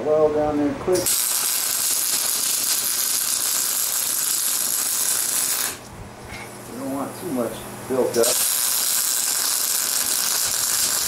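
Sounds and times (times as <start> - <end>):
welding arc crackling hiss: 1.0 - 5.9, 8.0 - 11.0.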